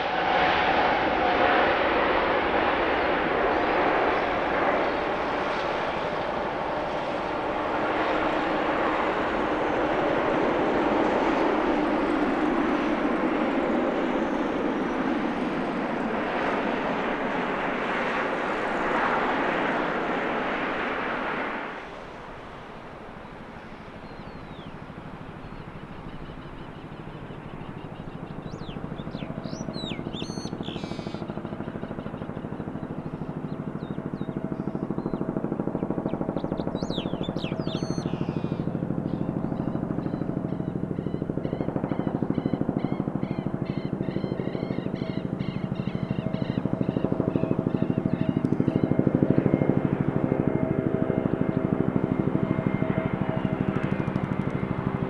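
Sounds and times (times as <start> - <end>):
jet engines running: 0.0 - 55.0.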